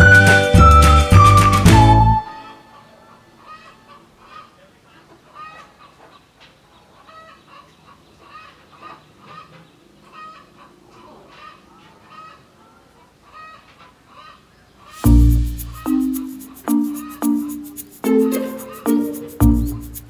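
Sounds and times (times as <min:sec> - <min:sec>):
chickens clucking: 0:02.8 - 0:20.0.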